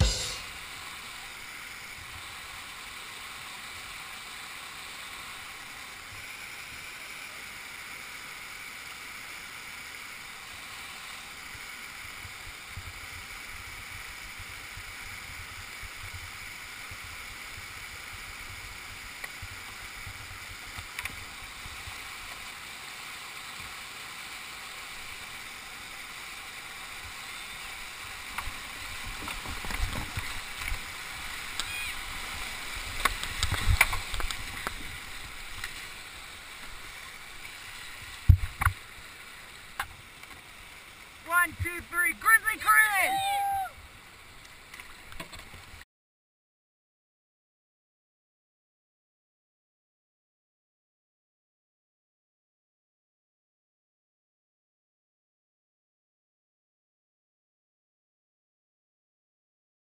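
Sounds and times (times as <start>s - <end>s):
whitewater rushing: 21.2s - 44.2s.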